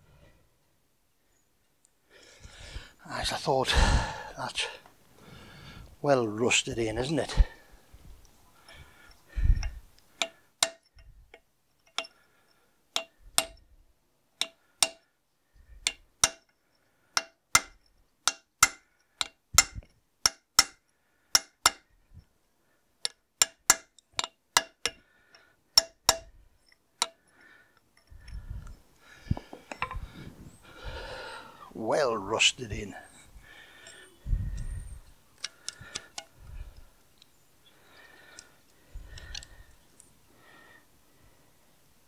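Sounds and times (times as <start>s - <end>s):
hammer tapping metal punch: 10.2s - 11.0s, 13.0s - 13.6s, 14.4s - 15.0s, 15.8s - 16.5s, 17.2s - 21.9s, 25.8s - 26.3s.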